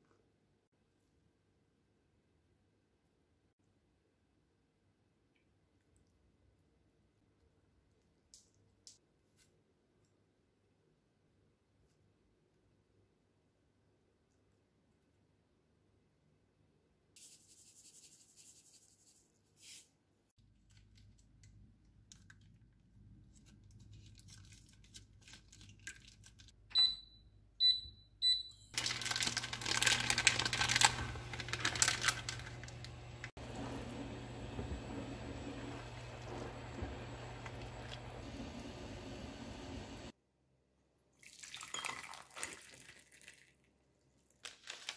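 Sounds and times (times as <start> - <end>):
cooktop low hum: 26.5 - 40.2
cooktop control beeps: 26.7 - 29.0.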